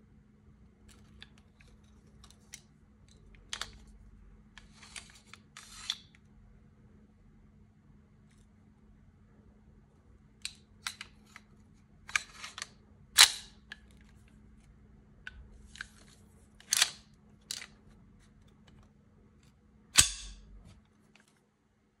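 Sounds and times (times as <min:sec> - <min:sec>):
pistol slide clacks: 0:20.0 - 0:20.5
pistol metal clicks: 0:20.0 - 0:20.6.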